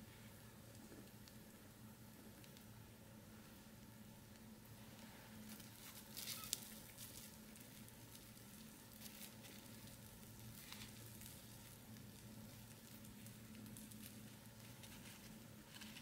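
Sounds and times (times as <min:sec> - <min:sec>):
low steady hum: 0:00.0 - 0:16.0
crisp crust crackling: 0:03.8 - 0:16.0.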